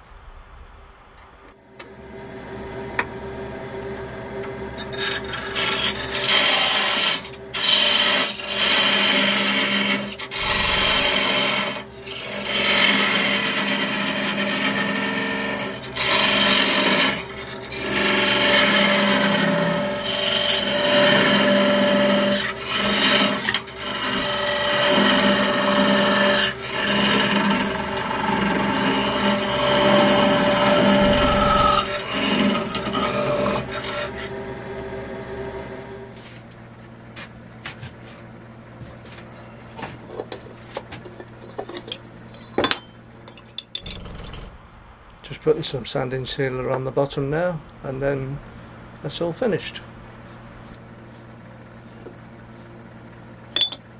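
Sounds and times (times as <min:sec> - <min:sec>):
wood lathe humming: 0:01.8 - 0:36.4
parting tool cutting wood: 0:04.8 - 0:34.4.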